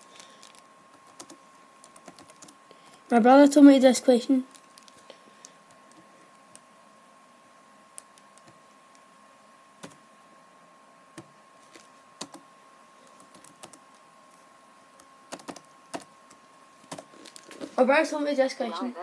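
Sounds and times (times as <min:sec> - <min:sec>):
faint steady hum: 0:00.0 - 0:19.0
keyboard keystrokes clicking: 0:15.3 - 0:16.1.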